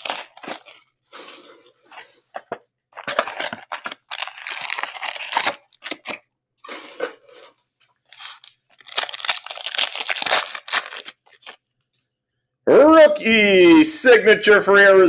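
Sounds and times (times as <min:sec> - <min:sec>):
foil packs crinkling and tearing: 0:00.0 - 0:00.8, 0:03.0 - 0:07.4, 0:08.1 - 0:11.6.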